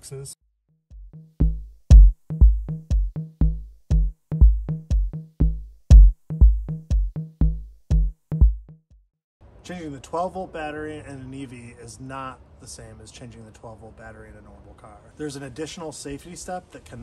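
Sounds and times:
short bass notes: 0.9 - 8.8
electronic drum machine beat: 0.9 - 9.0.

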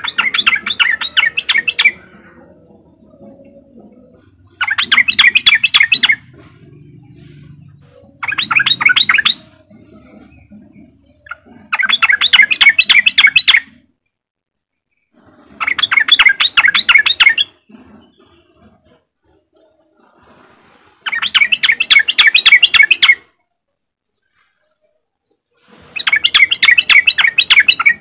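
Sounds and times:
bird chattering call: 0.0 - 2.6, 3.4 - 6.4, 8.1 - 13.8.

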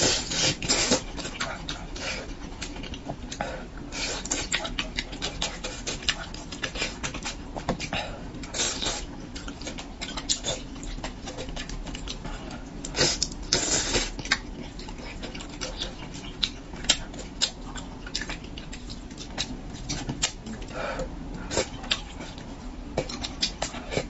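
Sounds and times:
wet chewing and lip smacks: 14.2 - 20.4, 21.4 - 24.0.

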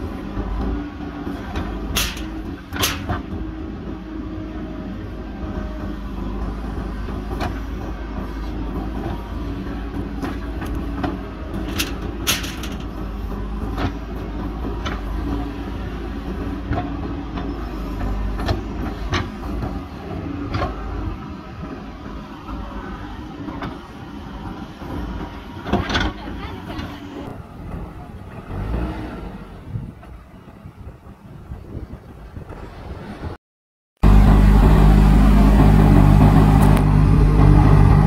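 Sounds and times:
diesel engine under load: 0.0 - 33.4, 34.0 - 38.0
bucket knocks and clanks: 1.9 - 3.3, 11.6 - 13.0.

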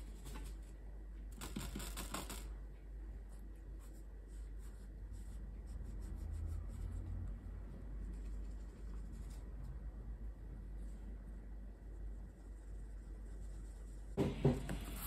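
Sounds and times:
brush scratching on paper: 3.8 - 9.6, 11.9 - 15.0.

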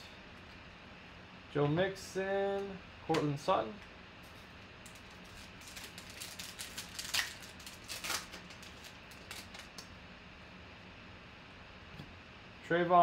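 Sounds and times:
cards clicking and rustling: 4.9 - 9.9.

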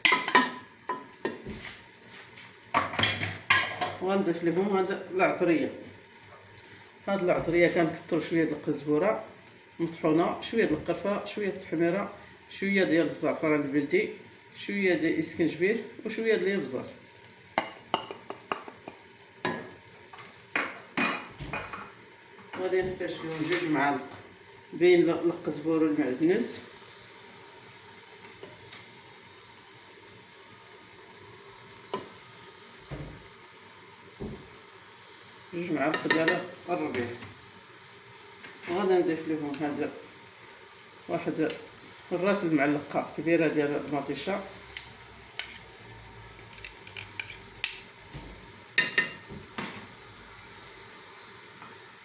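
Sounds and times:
meat sizzling in oil: 0.0 - 52.0.

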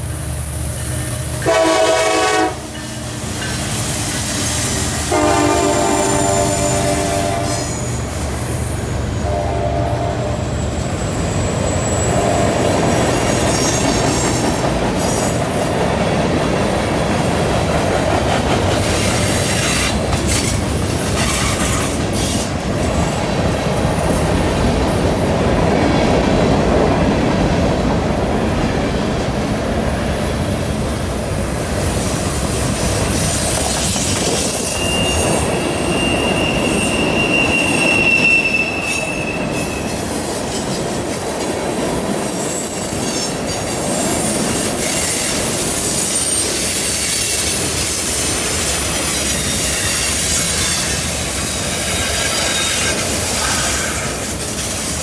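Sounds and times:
steel wheels rumbling on rail: 0.0 - 55.0
high-pitched wheel squeal: 33.0 - 43.7.

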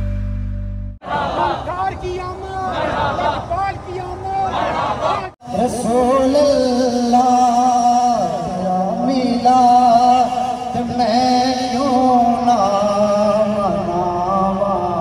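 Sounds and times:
man singing devotional song: 5.4 - 15.0.

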